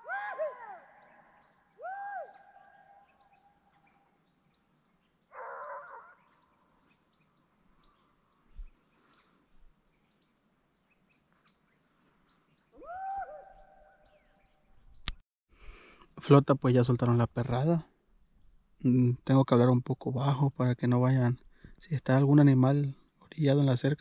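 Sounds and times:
distant animal call: 0.0s - 3.9s, 5.3s - 6.5s, 12.7s - 14.2s
insects droning: 0.0s - 15.1s.

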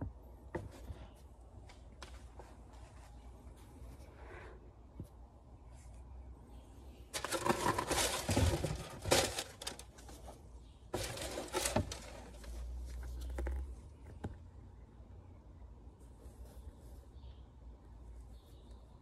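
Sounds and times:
sneakers and paper packaging rustling: 7.1s - 13.8s.

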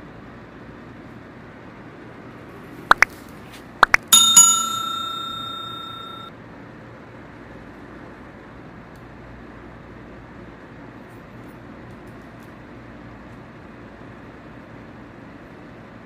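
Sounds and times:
bell ding: 3.9s - 6.3s.

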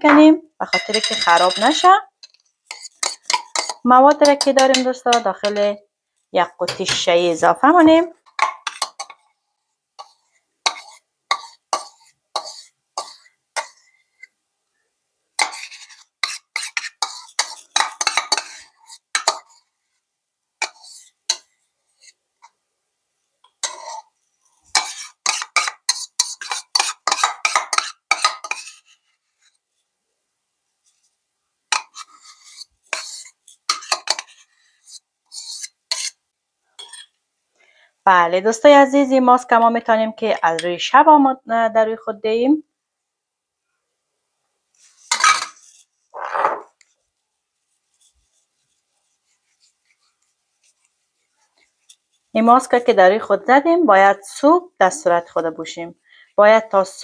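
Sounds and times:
spoon scraping ceramic bowl: 0.0s - 5.7s, 8.3s - 9.3s, 10.0s - 14.3s, 15.4s - 19.7s, 20.6s - 22.2s, 23.5s - 29.4s, 31.7s - 36.2s, 36.8s - 37.2s, 44.8s - 47.0s
spoon clinking on glass jar: 0.6s - 2.0s.

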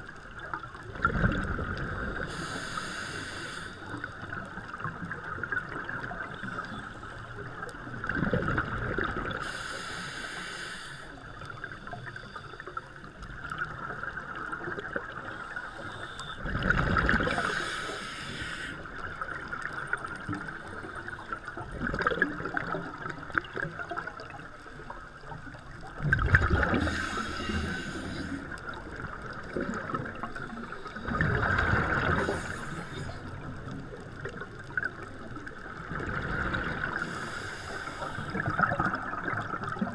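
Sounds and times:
underwater background hiss: 0.0s - 39.9s
regulator hiss: 2.3s - 4.1s, 9.4s - 11.2s, 17.4s - 18.9s, 26.8s - 28.5s, 37.0s - 38.4s
bubbling underwater exhalations: 26.0s - 27.2s.

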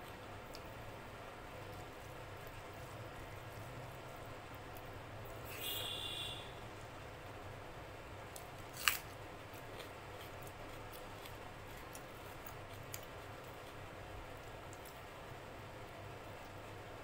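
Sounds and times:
background hiss: 5.2s - 8.4s.

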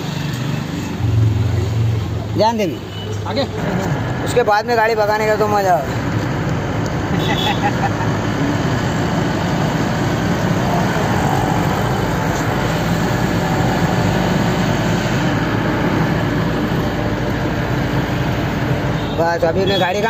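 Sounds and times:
road noise inside cab: 0.0s - 20.0s
truck diesel engine running: 7.9s - 19.0s.

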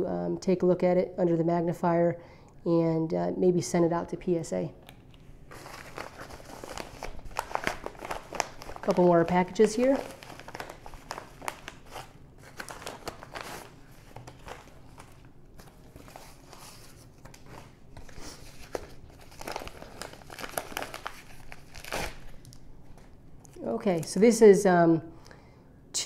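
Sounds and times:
bubble mailers crinkling: 4.9s - 24.2s.

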